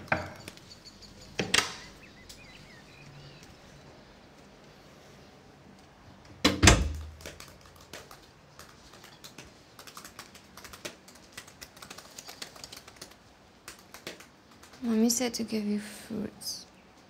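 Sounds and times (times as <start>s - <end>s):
typing on laptop keyboard: 7.0s - 14.9s.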